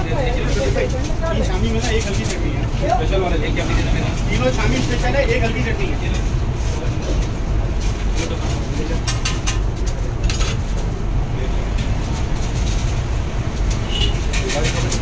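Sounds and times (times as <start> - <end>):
street food stall rumble: 0.0 - 15.0
metal spatula scraping iron griddle: 13.8 - 15.0.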